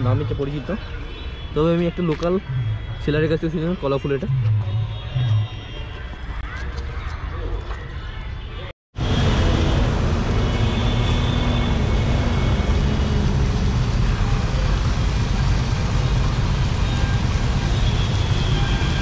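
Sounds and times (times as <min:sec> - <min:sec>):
low road rumble: 0:09.0 - 0:19.0
traffic hiss: 0:09.1 - 0:19.0.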